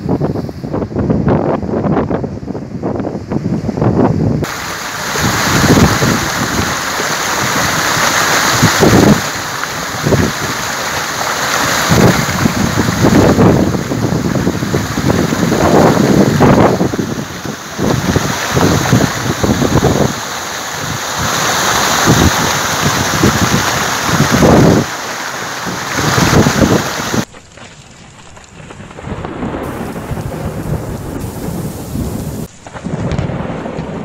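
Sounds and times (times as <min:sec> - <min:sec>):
steady water hiss: 0:04.4 - 0:27.3, 0:29.6 - 0:32.5
floodwater rushing over a weir: 0:04.4 - 0:28.9.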